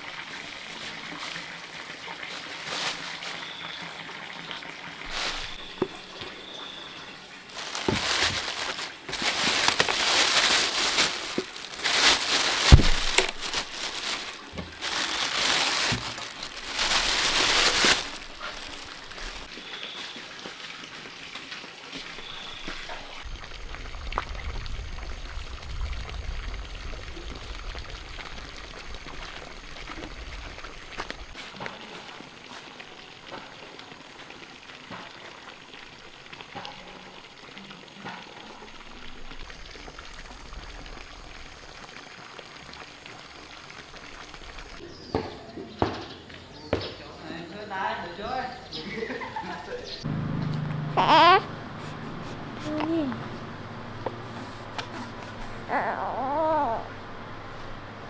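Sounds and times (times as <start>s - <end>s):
water pouring and splashing: 0.0s - 44.8s.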